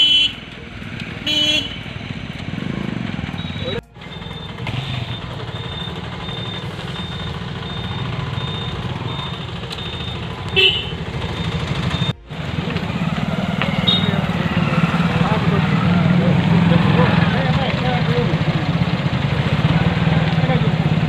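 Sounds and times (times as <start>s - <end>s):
vehicle horn toot: 0.0s - 0.5s, 1.2s - 2.0s, 3.3s - 15.8s
motorcycles passing: 0.0s - 21.0s.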